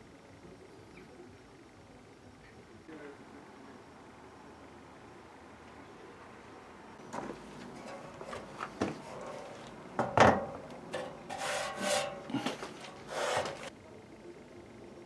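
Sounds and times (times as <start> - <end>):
metal crate scraping on table: 7.6 - 13.7
metal crate knocking on wood: 10.0 - 11.3.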